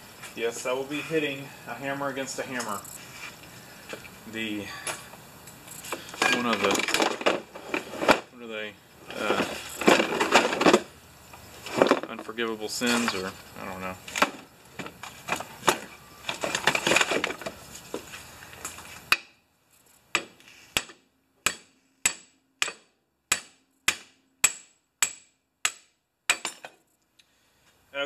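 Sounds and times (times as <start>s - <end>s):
rustling: 2.2s - 4.2s, 9.0s - 19.1s
hammer striking hammer: 20.1s - 26.7s.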